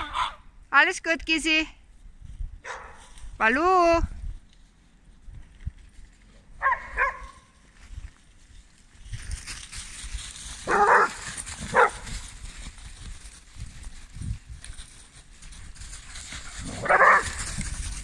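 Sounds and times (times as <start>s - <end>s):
dog barking: 2.6s - 3.0s, 6.6s - 7.5s, 10.7s - 12.0s, 16.8s - 17.4s.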